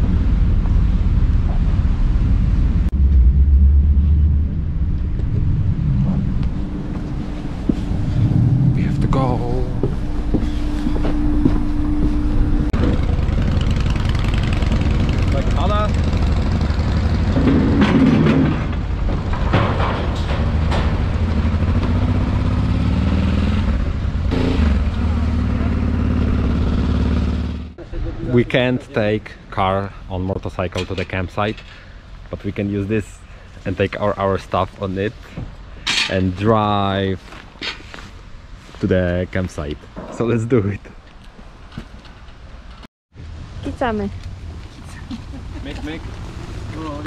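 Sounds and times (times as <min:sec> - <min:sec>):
ferry engines rumbling: 0:00.0 - 0:47.0
motorcycle engine running: 0:03.0 - 0:17.9, 0:21.0 - 0:27.8.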